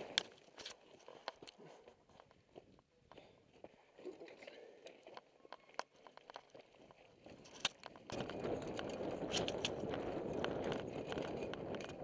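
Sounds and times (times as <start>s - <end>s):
bike clicks and rattles: 0.0s - 2.4s, 4.9s - 12.0s
wind and tyres on dirt: 0.0s - 12.0s.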